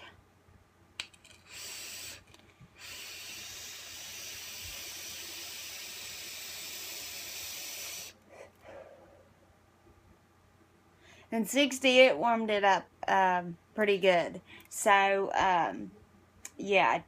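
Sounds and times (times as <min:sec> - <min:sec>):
vaporizer hissing: 0:01.4 - 0:08.2.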